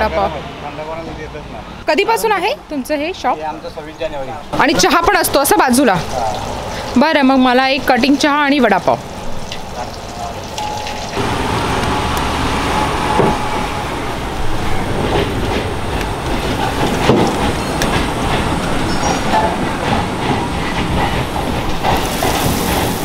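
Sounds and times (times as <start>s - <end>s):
train rumbling on rails: 2.6s - 23.0s
hot oil sizzling in a pan: 6.0s - 11.2s.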